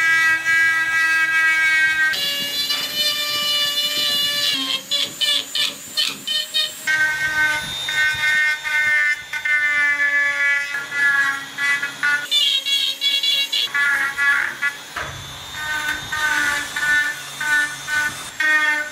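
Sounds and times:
rotary tool grinding wood: 0.0 - 18.9.

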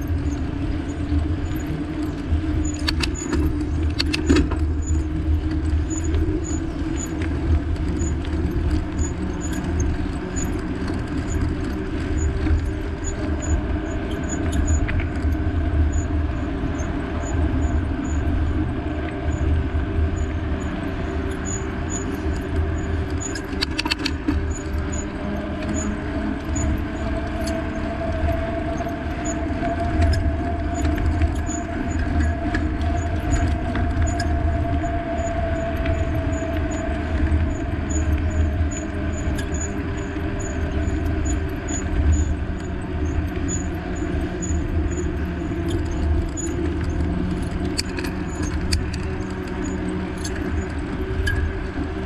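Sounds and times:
vehicle engine rumbling: 0.0 - 52.0
clicking rattle: 2.6 - 7.4, 21.4 - 25.9, 45.6 - 51.5.

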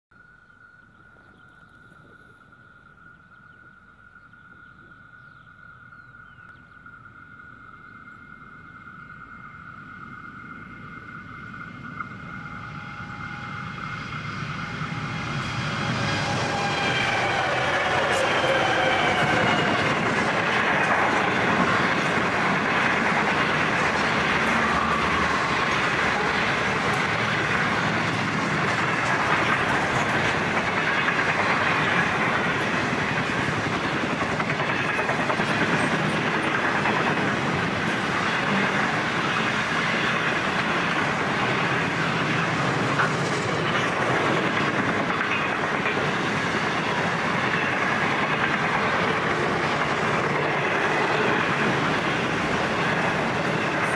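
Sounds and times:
train wheels clacking on rails: 11.4 - 53.9.

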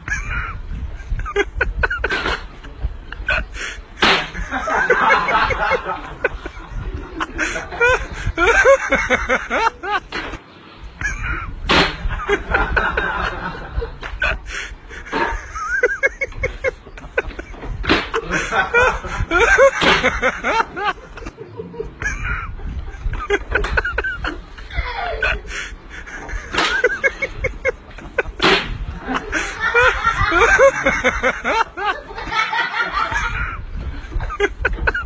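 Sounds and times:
men laughing: 0.0 - 35.0
sharp smacks: 4.0 - 4.5, 11.7 - 12.2, 26.5 - 26.9, 28.3 - 28.8.

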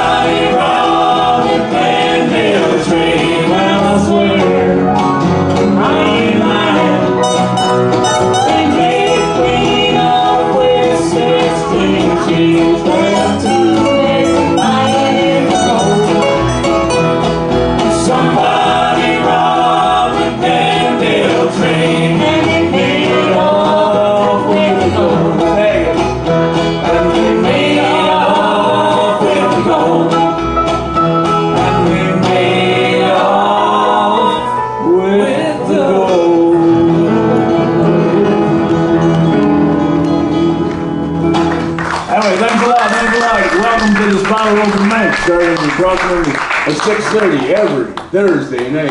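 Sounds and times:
voices singing together: 0.0 - 16.4, 17.6 - 30.6, 31.5 - 39.5
strummed acoustic guitars: 0.0 - 47.9.

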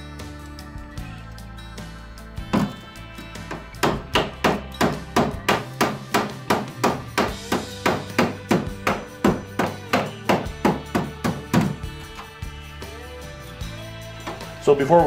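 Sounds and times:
hammer tapping sheet metal: 3.5 - 11.8.

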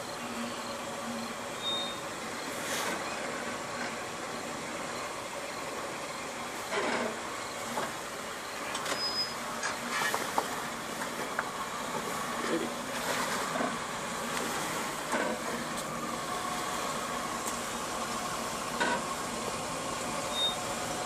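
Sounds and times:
vehicle engine running low: 0.0 - 21.0.

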